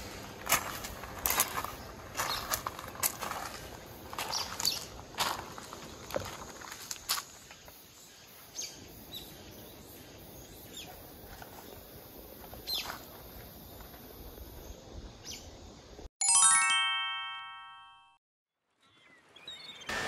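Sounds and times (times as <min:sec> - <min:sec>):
bright bell-like chime: 0:16.2 - 0:18.2
bird chirps: 0:18.8 - 0:20.0.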